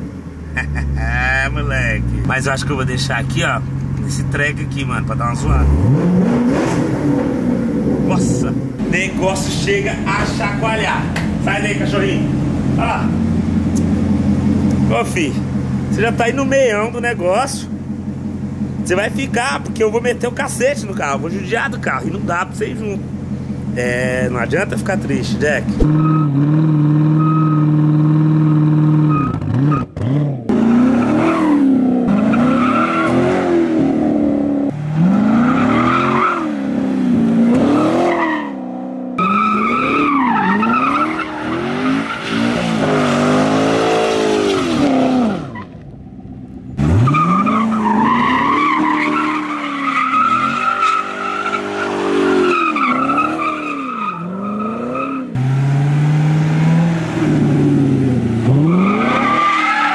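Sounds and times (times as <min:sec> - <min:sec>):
car engine revving: 0:00.0 - 0:59.9
tyres squealing on asphalt: 0:14.8 - 0:33.9, 0:34.7 - 0:45.8, 0:46.7 - 0:55.4, 0:58.4 - 0:59.9.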